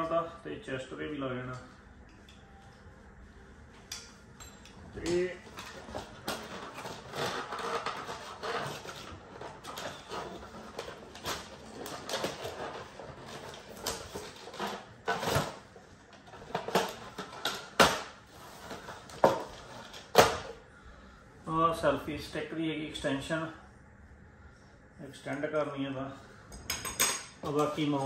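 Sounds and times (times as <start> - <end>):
plastic packaging rustling: 5.1 - 20.5.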